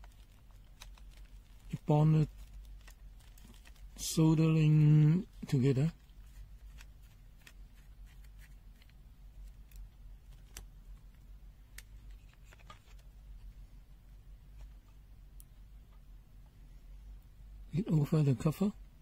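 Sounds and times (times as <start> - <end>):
small plastic parts clicking: 0.0 - 3.9.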